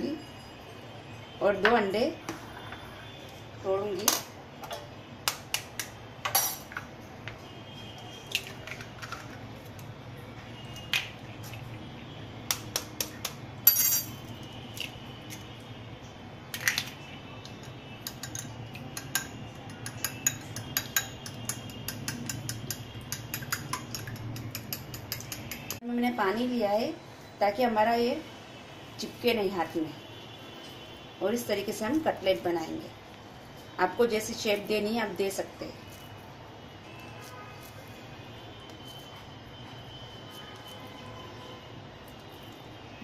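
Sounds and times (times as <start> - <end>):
eggs beaten with metal utensil: 18.0 - 25.8.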